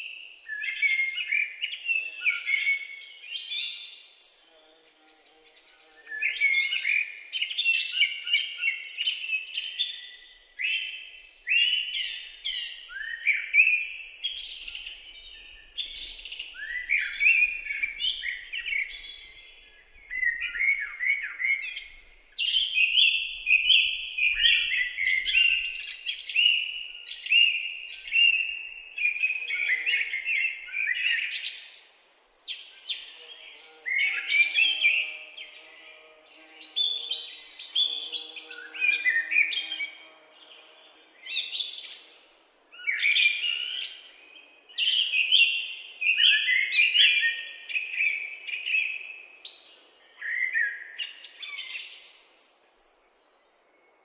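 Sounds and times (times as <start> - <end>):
songbirds chirping: 0.0 - 54.0.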